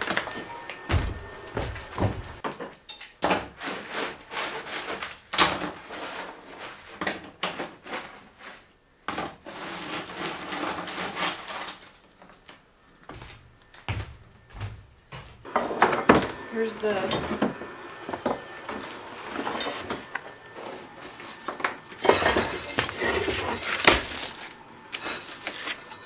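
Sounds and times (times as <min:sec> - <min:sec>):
rubble clattering on wooden floor: 0:22.0 - 0:24.6.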